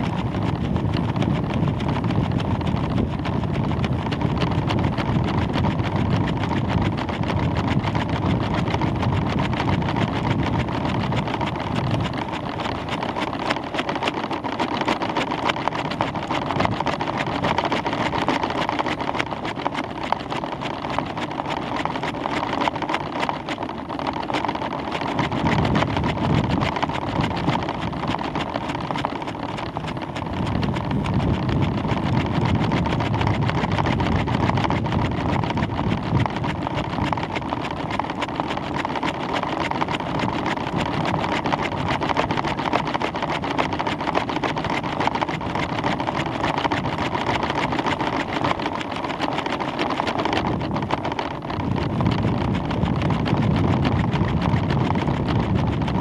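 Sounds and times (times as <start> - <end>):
low rumbling gusts: 0.0 - 12.9, 25.2 - 38.7, 50.3 - 56.0
wind rushing over microphone: 0.0 - 14.2, 25.0 - 56.0.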